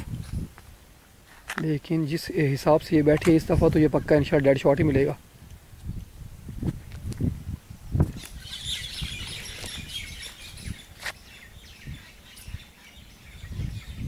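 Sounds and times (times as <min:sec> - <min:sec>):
small birds chirping: 0:07.9 - 0:14.0.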